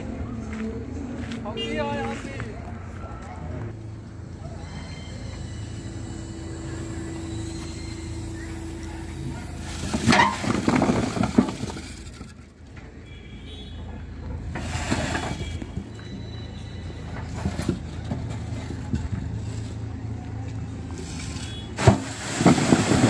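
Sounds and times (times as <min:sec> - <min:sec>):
diesel engine running: 0:02.8 - 0:12.8, 0:14.2 - 0:23.0
bricks tumbling and clattering: 0:09.6 - 0:12.8, 0:21.8 - 0:23.0.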